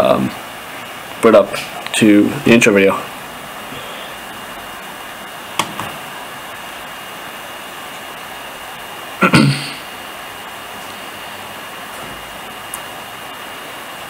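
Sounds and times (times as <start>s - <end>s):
faint high whine: 0.0s - 14.0s
steady hiss: 0.0s - 14.0s.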